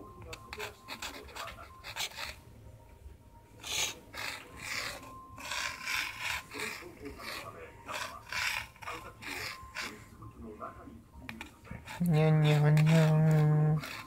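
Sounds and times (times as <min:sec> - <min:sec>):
strip scraping wooden floor: 0:03.6 - 0:10.0.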